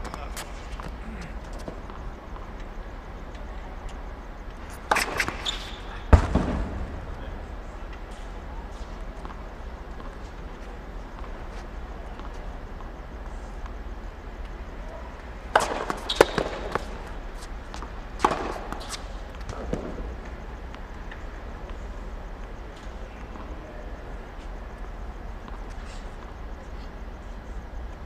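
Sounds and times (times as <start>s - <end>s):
steady low hum: 0.0s - 28.0s
racket striking tennis ball: 15.5s - 16.9s, 17.7s - 19.1s
tennis ball bouncing: 15.5s - 20.1s.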